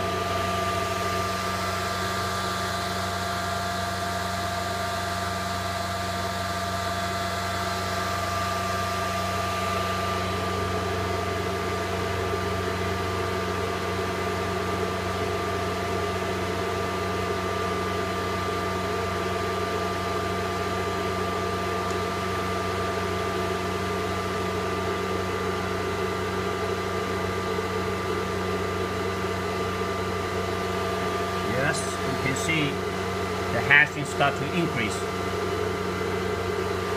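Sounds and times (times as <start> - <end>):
cooling fans whirring: 0.0 - 36.9.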